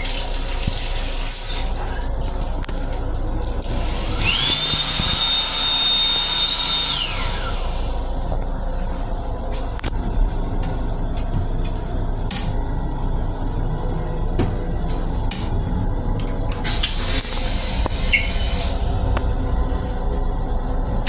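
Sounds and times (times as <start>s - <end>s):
steady low rumble: 1.7s - 6.3s, 6.9s - 21.0s
hand dryer blower whining: 3.6s - 8.2s.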